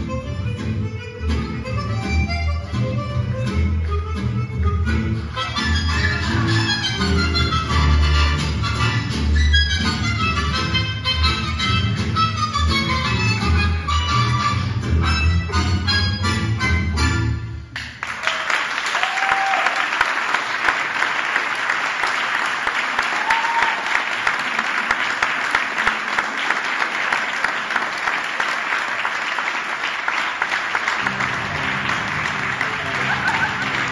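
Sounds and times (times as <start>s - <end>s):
tango music: 0.0s - 17.8s, 30.6s - 33.9s
audience applause: 17.8s - 33.9s.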